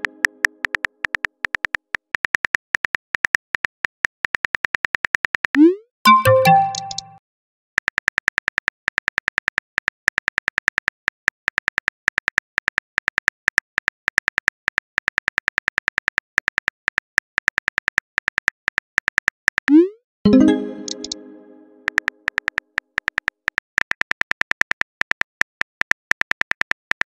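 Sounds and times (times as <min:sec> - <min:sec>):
smartphone keyboard typing clicks: 0:06.1 - 0:07.2, 0:20.8 - 0:21.2.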